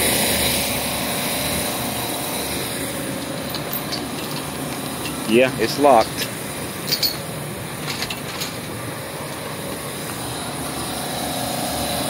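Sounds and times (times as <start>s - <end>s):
refrigeration units humming: 0.0s - 12.0s.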